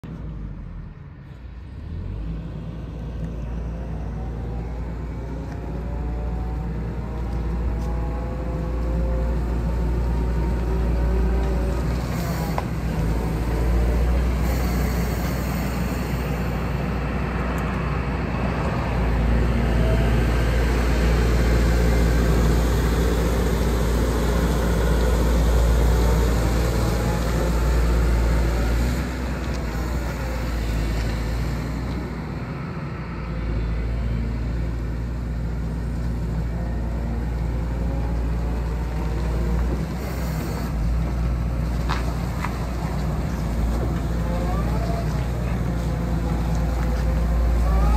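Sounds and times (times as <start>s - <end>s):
excavator diesel engine running: 0.0s - 47.9s.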